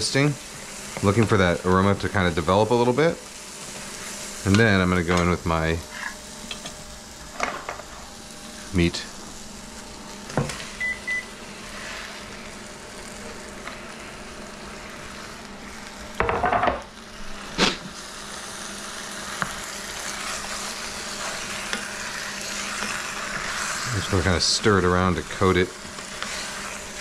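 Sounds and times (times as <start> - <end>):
meat sizzling in a pot: 0.0 - 27.0
short cooktop beeps: 10.8 - 11.3
cutting board knocks and clatter: 16.2 - 16.9.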